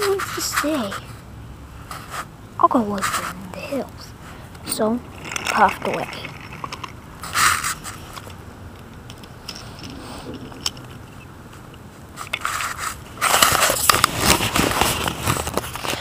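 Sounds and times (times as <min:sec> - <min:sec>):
microphone rubbing against clothing: 0:09.6 - 0:10.6.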